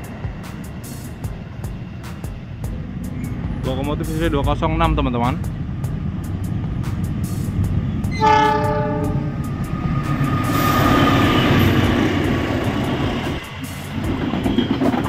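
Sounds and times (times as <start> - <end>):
train rumbling past on rails: 0.0 - 15.0
locomotive horn blast: 8.1 - 9.5.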